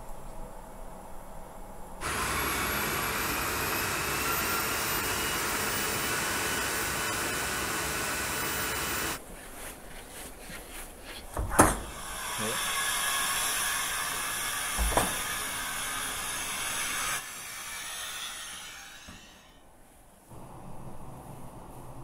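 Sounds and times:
thin rising whines: 2.0s - 9.2s
room hum: 19.6s - 22.0s.

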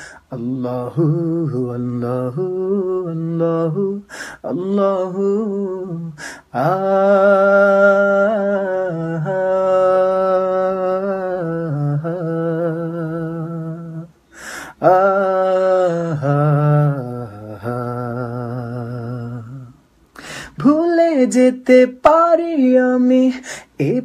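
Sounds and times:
intake of breath: 0.0s - 0.3s, 4.0s - 4.4s, 6.2s - 6.5s, 14.2s - 14.8s, 20.1s - 20.6s, 23.4s - 23.8s
man singing unaccompanied: 0.0s - 24.0s.

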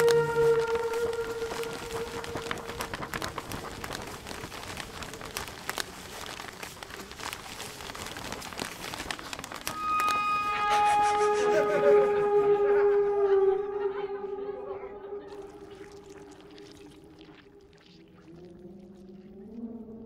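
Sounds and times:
horn-like tone: 0.0s - 2.6s, 9.7s - 15.3s
held musical tone: 0.0s - 3.1s, 9.7s - 15.6s
soundtrack crackling and clicks: 0.0s - 11.8s.

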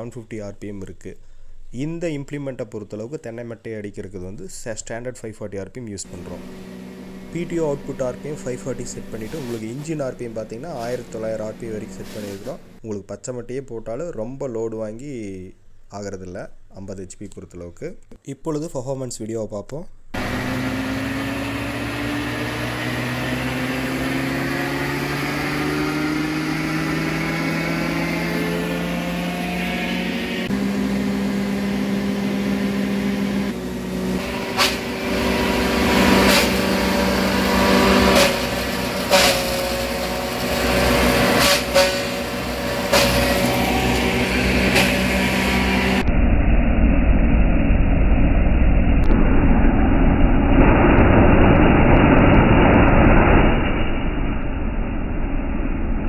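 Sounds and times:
diesel tractor engine running: 6.1s - 12.8s, 20.2s - 28.3s, 29.0s - 49.4s
loud sharp hits of shredder: 6.1s - 12.8s, 29.9s - 46.0s.

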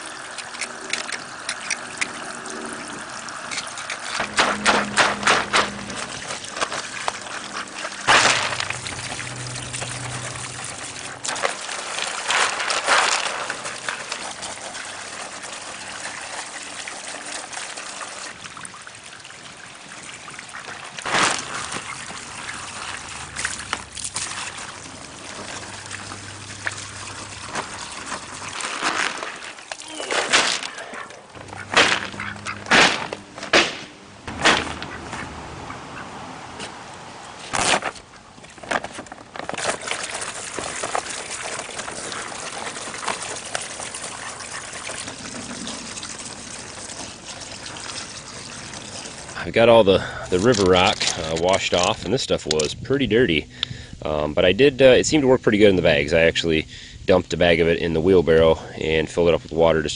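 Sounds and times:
water pouring from garden hose: 0.0s - 32.3s, 39.3s - 52.3s
water splashing onto concrete: 0.0s - 33.1s.

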